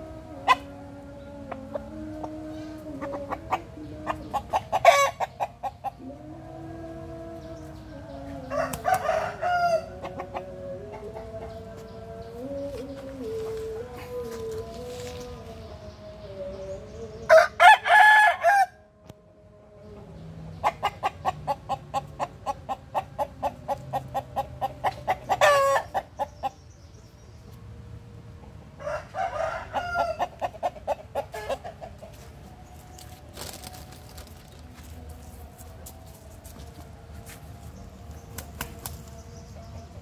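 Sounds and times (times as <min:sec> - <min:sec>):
clucking calls: 0:00.3 - 0:15.8, 0:19.9 - 0:26.7, 0:28.4 - 0:34.8
rooster crowing: 0:04.8 - 0:05.3, 0:06.0 - 0:11.0, 0:17.3 - 0:18.9, 0:25.3 - 0:26.0, 0:28.8 - 0:30.4.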